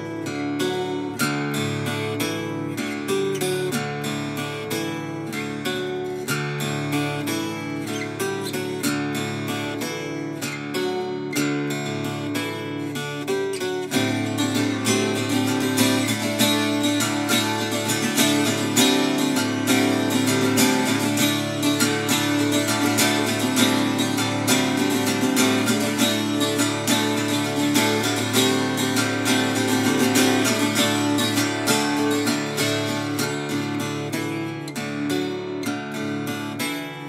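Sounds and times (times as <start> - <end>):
acoustic guitar strumming: 0.0 - 37.0.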